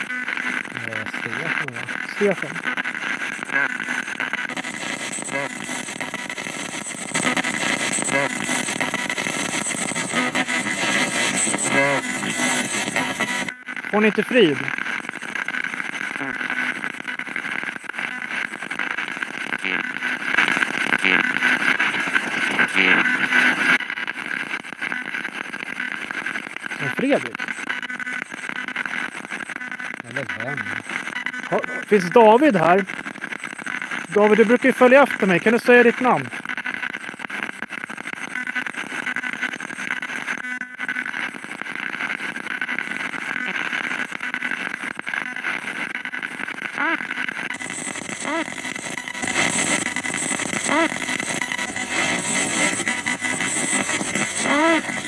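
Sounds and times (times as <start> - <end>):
pitched buzz: 0.0 - 55.0
spirit box static hiss: 0.0 - 55.0.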